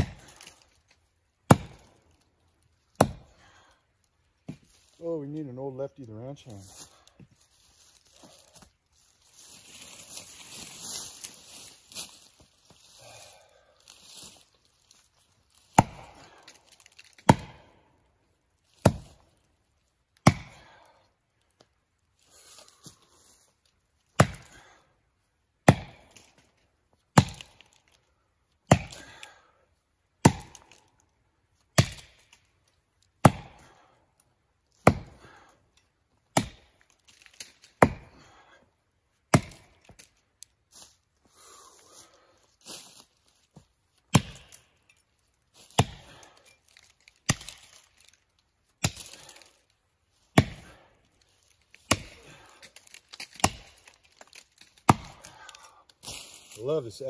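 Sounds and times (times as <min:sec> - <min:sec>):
axe chopping wood: 0:00.0 - 0:00.6, 0:01.5 - 0:02.0, 0:02.9 - 0:03.4, 0:15.6 - 0:17.8, 0:18.7 - 0:19.2, 0:20.2 - 0:20.8, 0:24.2 - 0:24.7, 0:25.6 - 0:26.4, 0:27.1 - 0:27.8, 0:28.7 - 0:29.3, 0:30.2 - 0:30.8, 0:31.7 - 0:32.4, 0:33.2 - 0:33.8, 0:34.8 - 0:35.5, 0:36.3 - 0:38.4, 0:39.3 - 0:40.1, 0:44.1 - 0:44.7, 0:45.6 - 0:48.1, 0:48.8 - 0:49.6, 0:50.3 - 0:50.9, 0:51.7 - 0:55.6.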